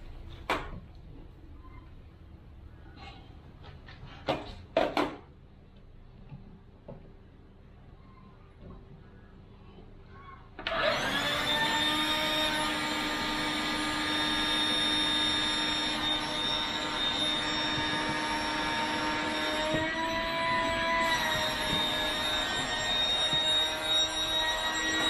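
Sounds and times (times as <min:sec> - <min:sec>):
electric air pump running: 0:10.7 - 0:25.0.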